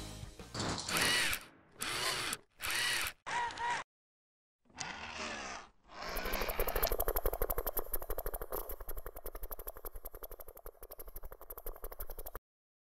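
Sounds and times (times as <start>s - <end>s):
fast ratcheting clicks: 0.9s - 3.2s, 5.9s - 12.4s
short mechanical whirs: 0.9s - 3.9s, 4.7s - 7.5s.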